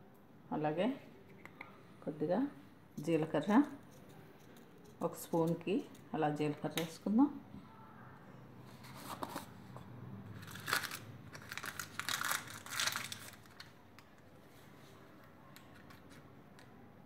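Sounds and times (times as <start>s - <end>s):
plastic packaging crinkling: 10.4s - 14.3s.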